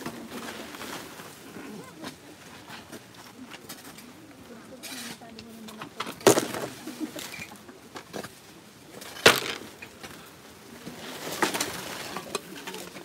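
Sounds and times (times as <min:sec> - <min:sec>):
hoes chopping and scraping soil: 0:06.0 - 0:06.8, 0:09.0 - 0:09.8.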